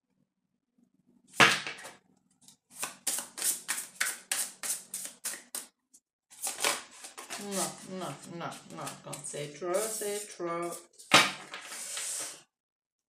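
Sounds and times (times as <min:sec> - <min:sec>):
cards being shuffled: 0:02.5 - 0:05.7, 0:06.4 - 0:07.8, 0:09.8 - 0:12.4.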